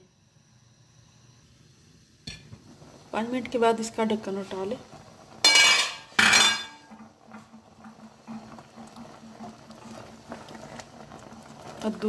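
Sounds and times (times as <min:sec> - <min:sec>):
food simmering in pot: 0:01.7 - 0:12.0
metal clanks on cooking pot: 0:05.4 - 0:07.0.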